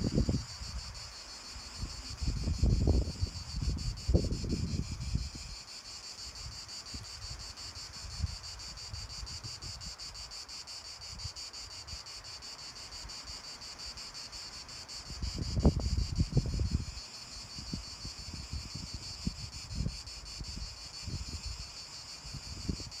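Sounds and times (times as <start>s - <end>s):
wind buffeting microphone: 0.0s - 1.0s, 1.8s - 5.6s, 15.1s - 21.6s, 22.2s - 23.0s
insects chirring: 0.0s - 23.0s.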